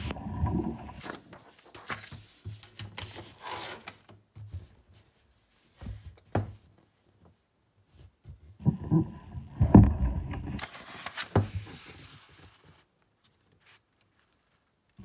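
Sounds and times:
paper rustling on wooden table: 1.0s - 6.7s, 10.6s - 14.7s.

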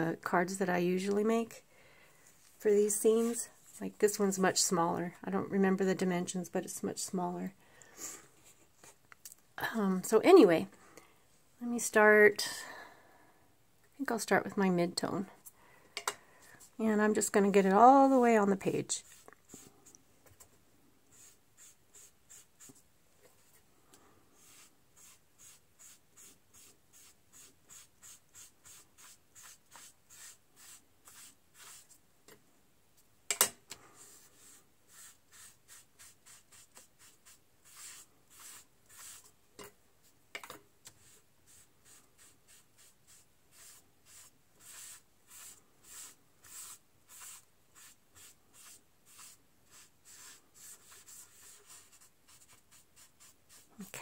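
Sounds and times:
sponge rubbing on cardstock: 24.4s - 31.9s, 34.0s - 39.3s, 41.0s - 53.7s.

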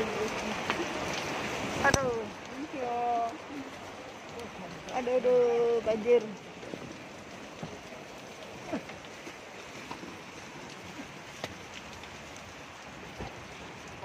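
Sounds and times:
heavy rain on umbrella: 0.0s - 14.0s
sharp raindrops ticking: 0.0s - 14.0s.

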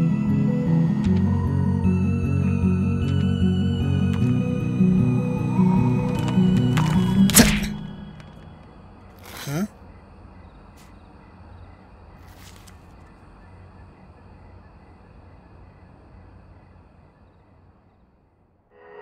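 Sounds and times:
brief rustle: 12.2s - 13.0s.

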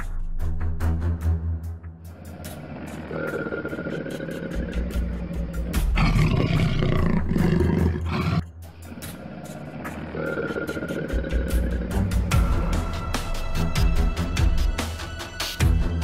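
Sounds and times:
dramatic music with steady beat: 0.0s - 16.0s
jaguar roaring: 2.2s - 8.5s, 9.1s - 12.4s.

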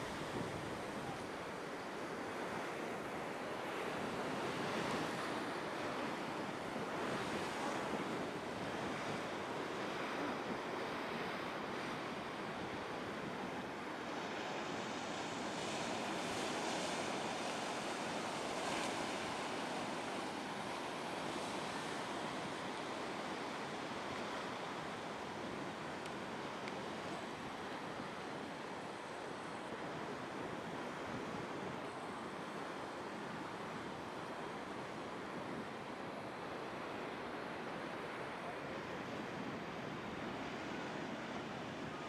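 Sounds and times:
waves crashing: 0.0s - 42.0s.

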